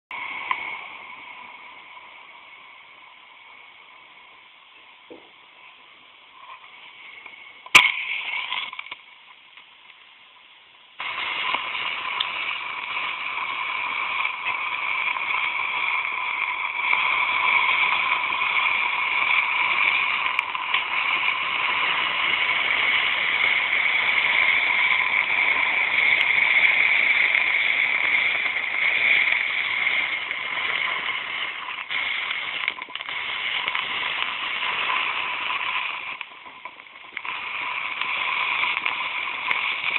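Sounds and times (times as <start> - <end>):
matches fizzing and crackling: 0.1 - 39.9
sharp click with hiss: 7.2 - 10.0, 11.0 - 39.9.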